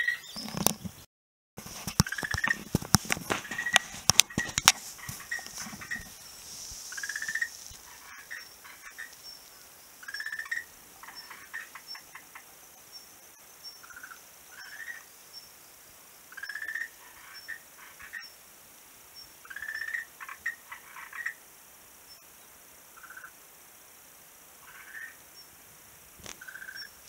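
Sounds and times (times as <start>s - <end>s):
frogs croaking: 2.0s - 2.7s, 3.3s - 15.5s, 16.2s - 18.4s, 19.2s - 21.5s, 22.9s - 23.5s, 24.6s - 25.5s, 26.3s - 27.0s.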